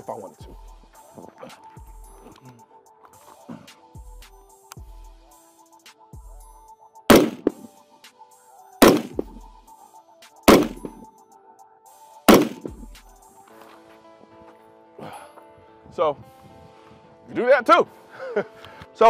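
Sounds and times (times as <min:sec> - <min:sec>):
rifle shots: 0:07.1 - 0:07.7, 0:08.8 - 0:09.4, 0:10.5 - 0:11.0, 0:12.3 - 0:12.8.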